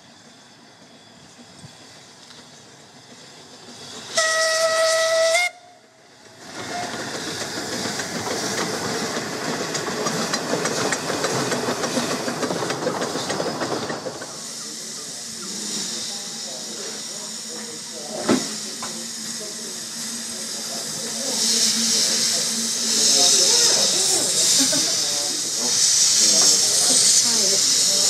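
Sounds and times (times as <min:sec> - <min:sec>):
steam hissing: 0:00.0 - 0:28.0
steam locomotive whistle: 0:04.1 - 0:06.0.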